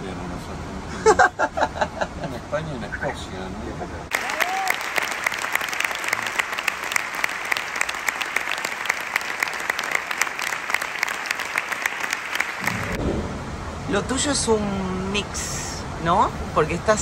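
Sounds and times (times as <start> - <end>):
audience applauding: 4.1 - 13.0.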